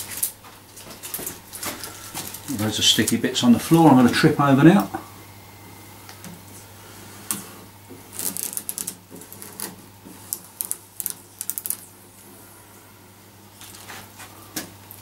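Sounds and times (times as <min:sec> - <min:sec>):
vinyl strip crackling: 0:00.0 - 0:05.0, 0:08.0 - 0:12.3.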